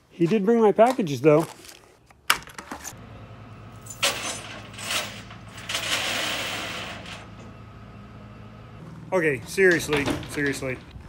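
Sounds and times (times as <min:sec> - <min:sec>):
truck engine idling: 0:03.0 - 0:11.0
rattling noise: 0:09.4 - 0:11.0.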